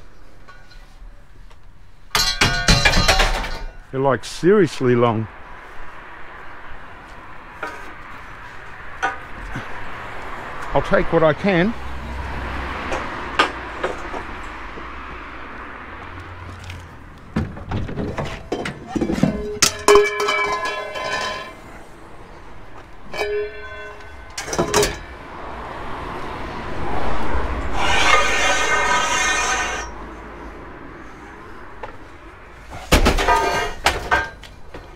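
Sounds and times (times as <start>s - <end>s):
scrap steel clanking: 2.1s - 3.9s, 17.4s - 22.0s, 22.8s - 25.3s, 27.6s - 30.0s, 32.7s - 34.9s
ringing metallic tones: 19.3s - 21.7s, 23.0s - 25.1s.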